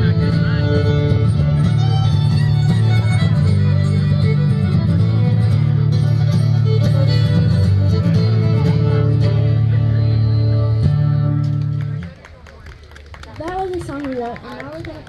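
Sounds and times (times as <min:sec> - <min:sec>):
strummed acoustic guitar: 0:00.0 - 0:12.0
fiddles bowing melody: 0:00.0 - 0:12.1
upright bass: 0:00.0 - 0:12.1.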